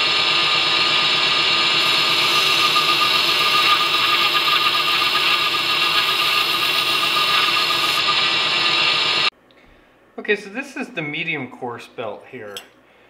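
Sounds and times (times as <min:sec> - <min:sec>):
belt grinder grinding rush: 0:00.0 - 0:09.3
blade hissing on belt: 0:01.8 - 0:09.3.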